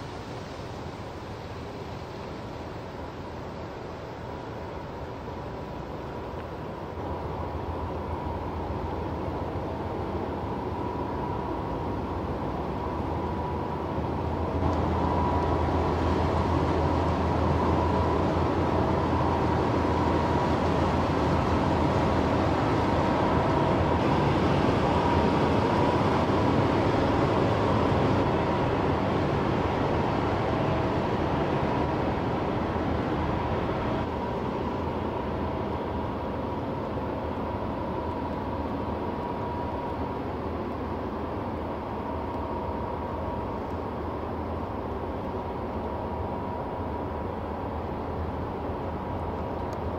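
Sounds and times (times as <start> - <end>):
ship engine drone: 0.0 - 49.9.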